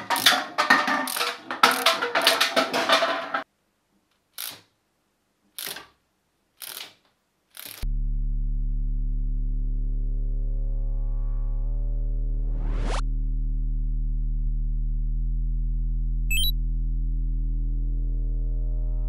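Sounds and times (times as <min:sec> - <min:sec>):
high electronic chirps: 0:16.3 - 0:16.5.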